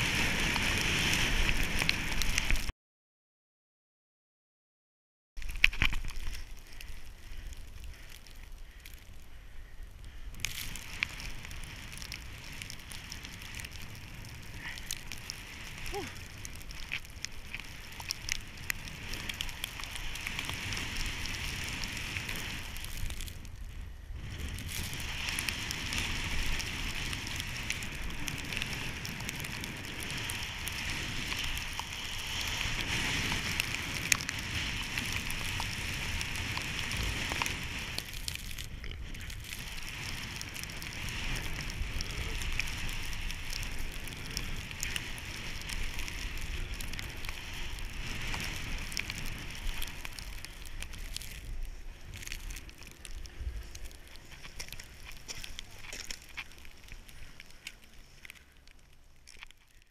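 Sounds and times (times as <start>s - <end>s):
snowboard hissing through snow: 0.0s - 2.5s, 24.1s - 38.0s, 39.0s - 50.0s
wind rumbling on microphone: 0.0s - 2.7s, 5.4s - 59.9s.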